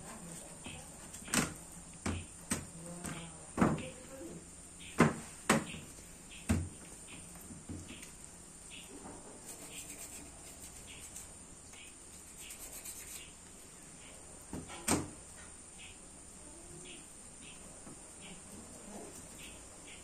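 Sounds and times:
faint high chirps: 2.1 - 14.3, 15.4 - 20.0.

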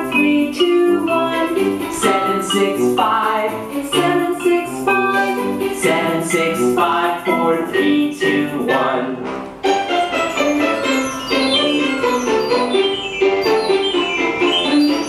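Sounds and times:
person singing: 0.0 - 9.3
plucked strings: 9.2 - 15.0.

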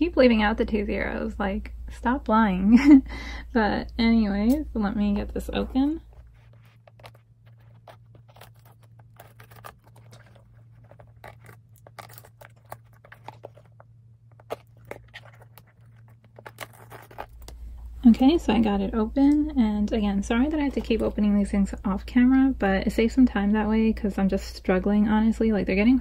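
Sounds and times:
low steady hum: 0.0 - 26.0
package scratching and tearing: 5.8 - 17.7.

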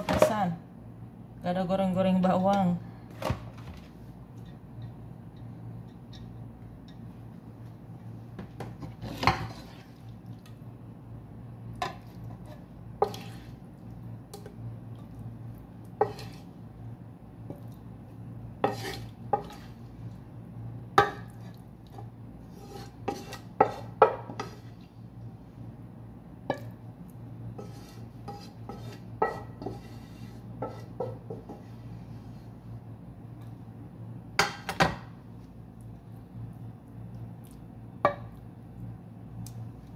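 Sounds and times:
steady low hum: 0.0 - 39.9.

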